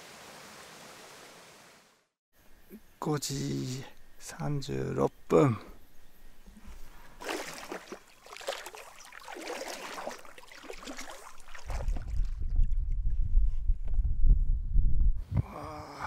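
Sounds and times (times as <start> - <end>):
paddle strokes swishing through water: 7.2 - 12.4
wind buffeting microphone: 11.7 - 15.5.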